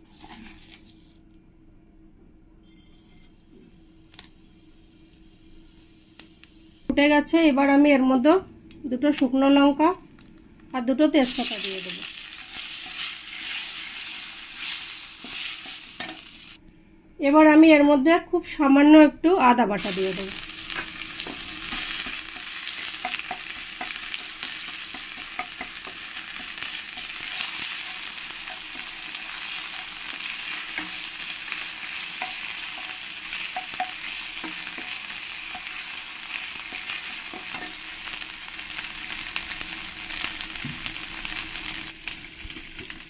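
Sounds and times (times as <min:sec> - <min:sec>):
spices sizzling in oil: 0:11.2 - 0:16.6, 0:19.8 - 0:43.0
spatula scraping a pan: 0:12.3 - 0:16.2.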